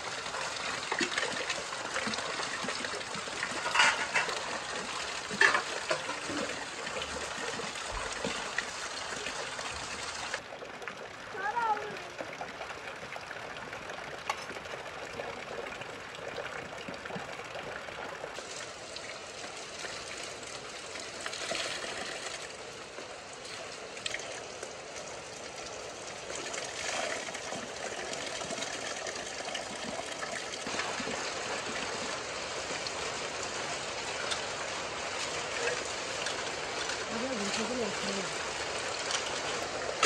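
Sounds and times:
water gushing from tap: 0.0s - 40.0s
water splashing into steel bowl: 0.9s - 8.6s.

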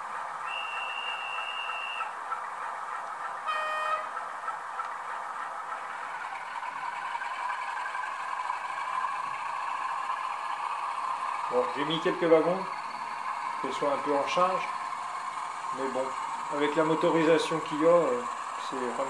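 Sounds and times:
diesel engine drone: 0.0s - 19.0s
train horn blast: 3.4s - 4.1s.

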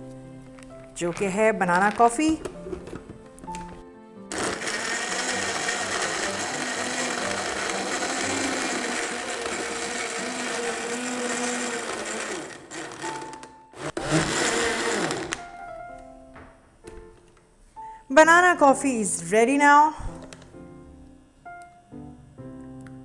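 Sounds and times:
blender running: 4.3s - 15.5s.

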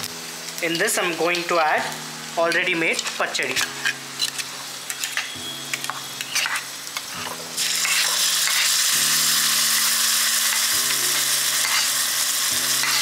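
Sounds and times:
spices sizzling in hot oil: 0.0s - 13.0s
paste hissing in hot oil: 7.6s - 13.0s.

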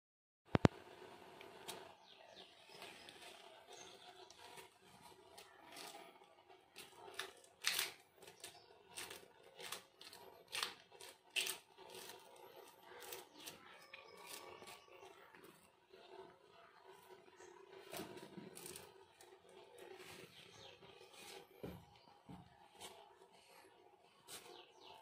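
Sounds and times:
cat crunching dried fish: 2.5s - 15.6s, 17.8s - 20.0s.

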